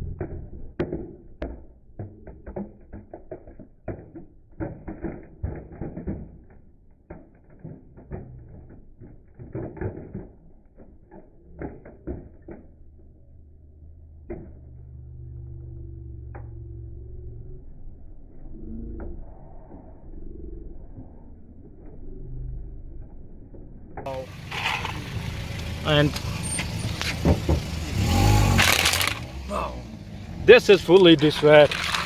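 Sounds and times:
low car engine hum: 0.0 - 32.0
plastic toy cracking under tyre: 0.8 - 12.8, 28.6 - 29.3, 31.6 - 32.0.

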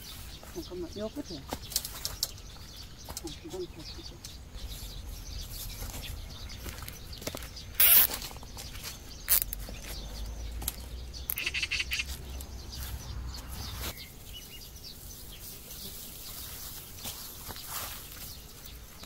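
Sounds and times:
wire twisting rustles and clicks: 6.8 - 10.0.

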